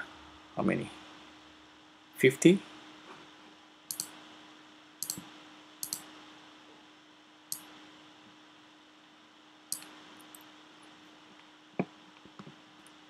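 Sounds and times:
faint steady hum: 0:00.0 - 0:13.0
computer mouse clicking: 0:03.9 - 0:04.1, 0:05.0 - 0:05.2, 0:05.8 - 0:06.0.

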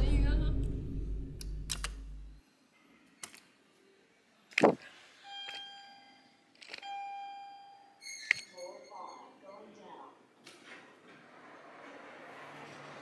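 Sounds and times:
low hum: 0:00.0 - 0:02.4
elevator arrival chime: 0:05.2 - 0:09.7.

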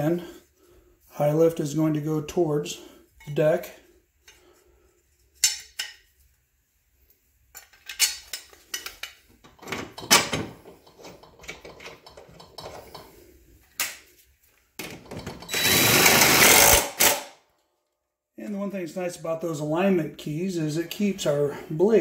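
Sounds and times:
metal clinks and knocks: 0:07.5 - 0:13.2
cordless power driver running: 0:15.5 - 0:17.2.

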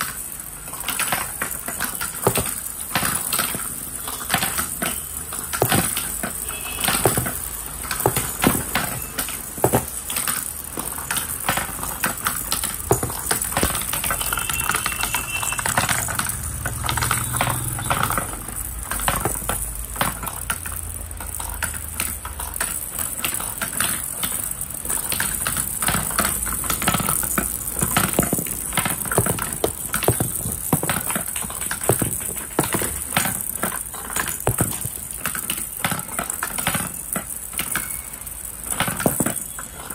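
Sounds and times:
plastic balls rattling down tracks: 0:00.0 - 0:39.9.

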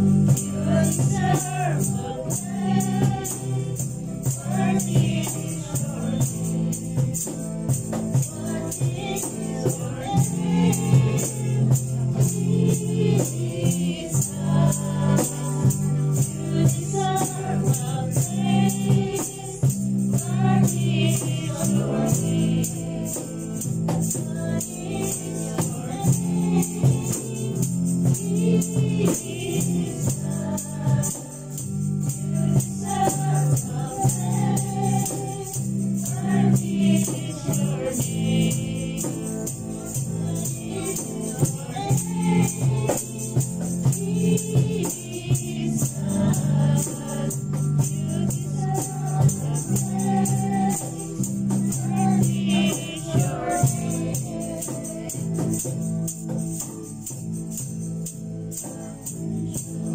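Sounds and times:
girl and women singing: 0:00.0 - 0:55.9
rattling hand percussion: 0:00.0 - 0:59.9.

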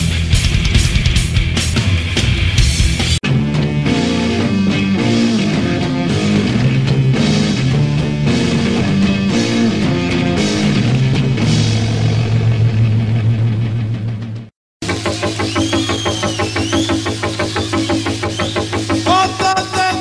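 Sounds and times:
instrumental rock music: 0:00.0 - 0:20.0.

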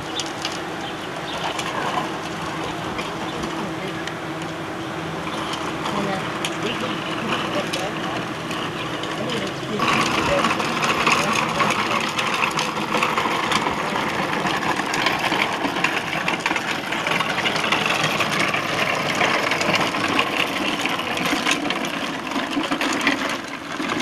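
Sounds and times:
plastic toy car wheels rattling: 0:05.3 - 0:24.0.

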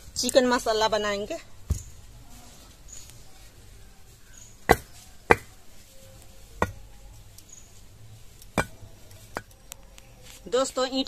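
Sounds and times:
bricks knocking: 0:04.6 - 0:05.5, 0:06.6 - 0:06.8, 0:08.6 - 0:09.5.

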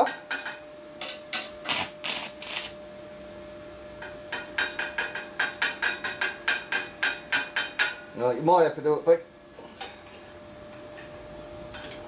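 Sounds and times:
welding arc crackling: 0:01.1 - 0:02.8
electrode tapping metal pipe: 0:04.0 - 0:08.1.

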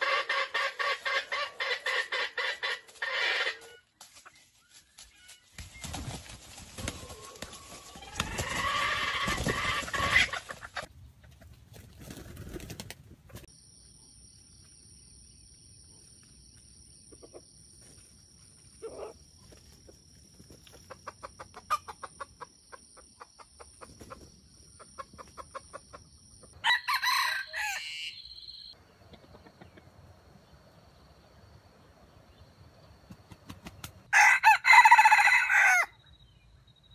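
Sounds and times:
roosters crowing: 0:00.0 - 0:03.8, 0:06.8 - 0:10.9, 0:26.6 - 0:28.6, 0:34.1 - 0:36.0
soft clucking: 0:29.0 - 0:30.0.

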